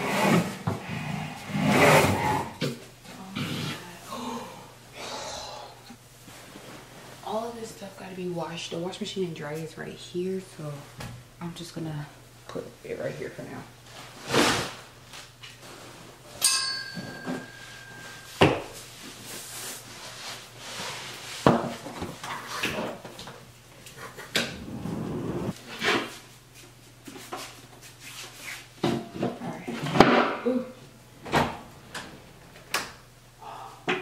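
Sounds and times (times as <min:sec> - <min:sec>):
household items knocking and clattering: 0:16.4 - 0:17.8
metallic clank ringing: 0:16.4 - 0:18.3.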